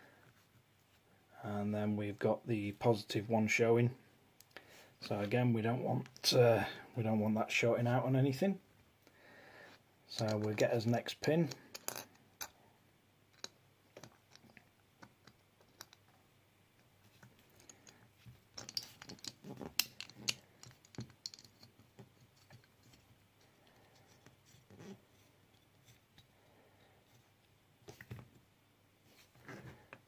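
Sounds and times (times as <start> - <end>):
small metal clicks and taps: 13.3 - 16.1, 18.6 - 24.3.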